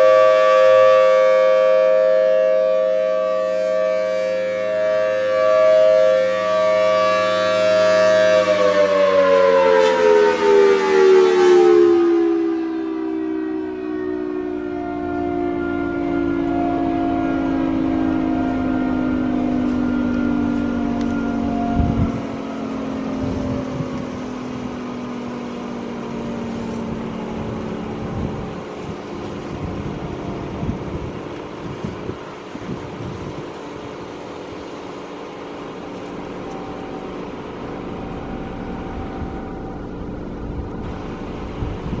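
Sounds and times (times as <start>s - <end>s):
siren winding down: 0.0s - 42.0s
low rumble: 19.4s - 42.0s.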